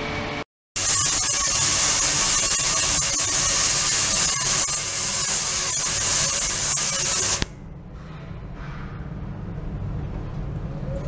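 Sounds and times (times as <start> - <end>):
ultrasonic cleaner hissing: 0.8 - 7.5.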